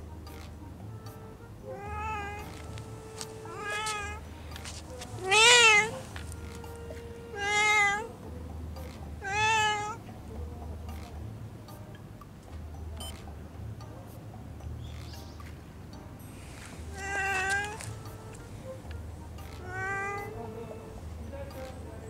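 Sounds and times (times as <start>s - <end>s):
cat meowing: 1.6s - 4.2s, 5.1s - 8.1s, 9.2s - 10.0s, 16.9s - 18.5s, 19.4s - 20.8s.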